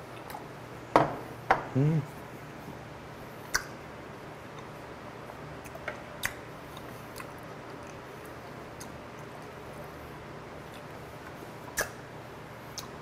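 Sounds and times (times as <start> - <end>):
mouth clicks and smacks: 3.4 - 3.8, 5.6 - 8.0, 8.7 - 9.3, 11.7 - 12.0, 12.7 - 13.0
chewing food: 5.6 - 9.6, 10.6 - 11.9.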